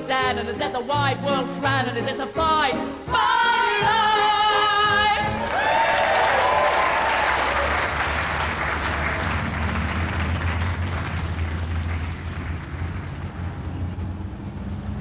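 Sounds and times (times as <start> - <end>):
audience applause: 5.4 - 13.5
low rumble: 8.0 - 15.0.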